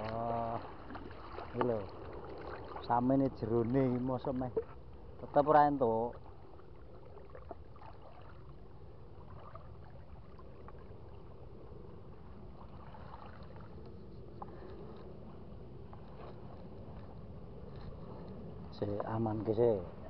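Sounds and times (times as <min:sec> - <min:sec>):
small splashes: 0:00.0 - 0:05.5, 0:06.1 - 0:15.1
legs wading through water: 0:00.0 - 0:20.0.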